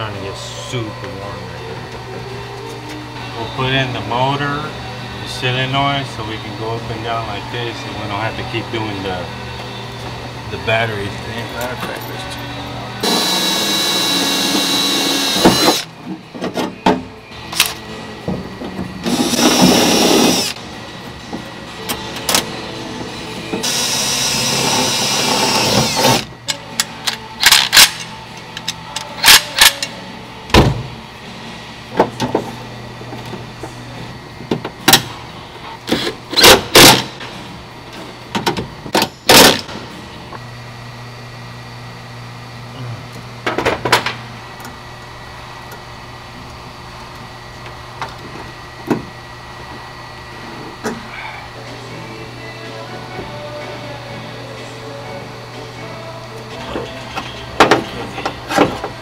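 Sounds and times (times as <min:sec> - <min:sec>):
cordless drill running: 0:13.0 - 0:15.9, 0:19.1 - 0:20.6, 0:23.6 - 0:26.3.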